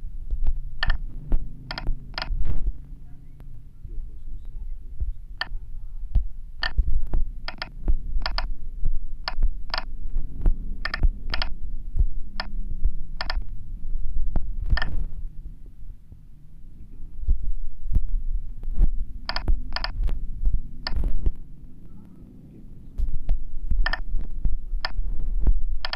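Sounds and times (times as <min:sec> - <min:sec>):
steady low hum: 0:00.0 - 0:25.9
keypad clicks: 0:00.8 - 0:01.0, 0:01.7 - 0:02.4, 0:06.6 - 0:08.5, 0:09.2 - 0:09.9, 0:10.8 - 0:11.6, 0:13.2 - 0:13.4, 0:14.7 - 0:15.0, 0:19.3 - 0:20.0, 0:23.8 - 0:24.1, 0:24.8 - 0:25.0.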